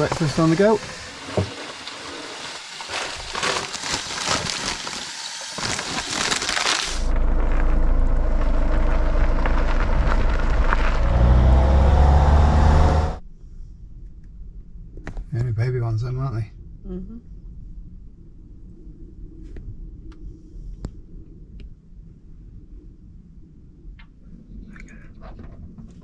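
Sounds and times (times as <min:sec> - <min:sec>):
crackling gusty hiss: 0:00.0 - 0:07.1
camper van engine droning: 0:05.6 - 0:13.2
road noise: 0:06.3 - 0:13.2.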